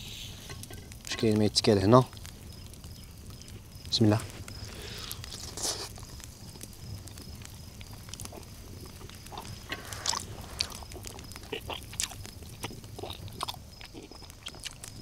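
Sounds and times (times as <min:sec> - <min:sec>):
high insect trill: 0:00.0 - 0:15.0
man chewing meat off bone: 0:07.7 - 0:15.0.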